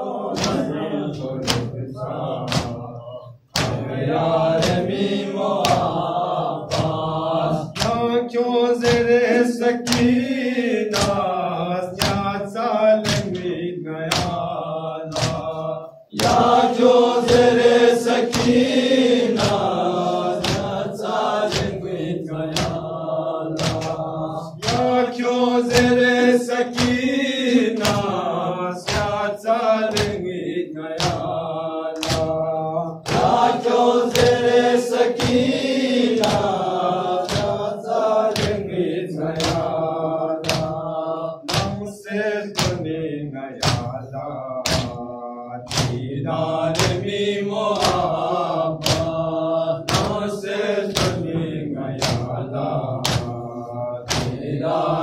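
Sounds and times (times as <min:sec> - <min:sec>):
men chanting a lament in unison: 0:00.0 - 0:55.0
hands striking chests: 0:02.5 - 0:02.8, 0:03.6 - 0:03.9, 0:15.1 - 0:15.5, 0:23.6 - 0:24.0, 0:32.0 - 0:32.3, 0:39.4 - 0:39.6, 0:40.4 - 0:40.7, 0:41.5 - 0:41.8, 0:48.8 - 0:49.1.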